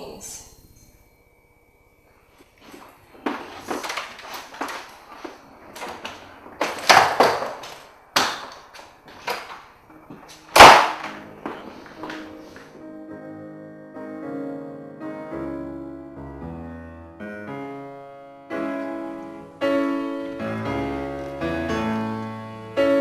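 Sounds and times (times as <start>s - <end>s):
knocks and bumps: 3.2s - 12.3s
door slamming: 3.3s - 9.6s, 10.3s - 12.3s
soft piano music: 9.8s - 23.0s.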